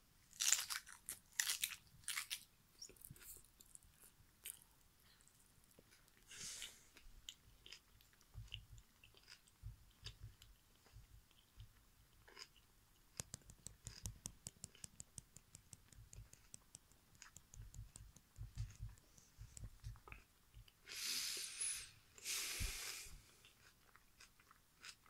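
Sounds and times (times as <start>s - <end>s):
mouth chewing banana: 5.2s - 15.0s, 23.2s - 25.0s.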